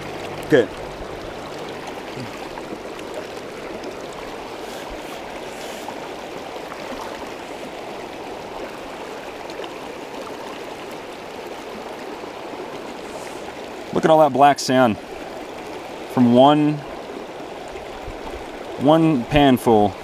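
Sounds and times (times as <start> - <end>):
creek water rushing over rocks: 0.0 - 20.0.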